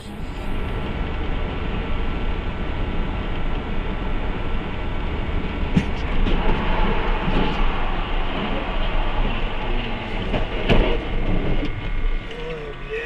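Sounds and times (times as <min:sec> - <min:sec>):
moving vehicle rumble: 0:00.0 - 0:13.0.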